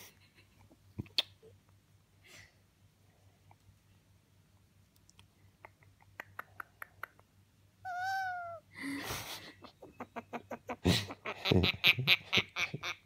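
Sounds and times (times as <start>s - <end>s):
parrot whining: 7.8s - 8.7s.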